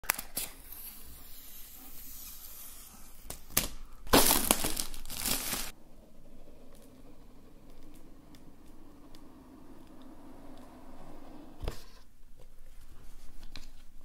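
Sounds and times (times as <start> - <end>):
plastic film crackling: 3.3 - 5.8
plastic film crinkling: 3.3 - 5.8.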